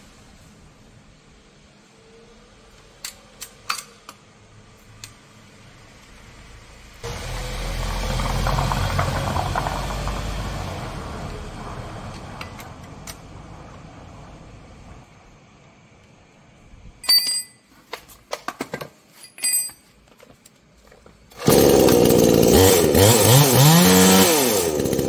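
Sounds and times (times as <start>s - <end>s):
chainsaw engine running: 7.1s - 10.6s, 21.3s - 25.0s
chainsaw control clicks: 21.3s - 25.0s.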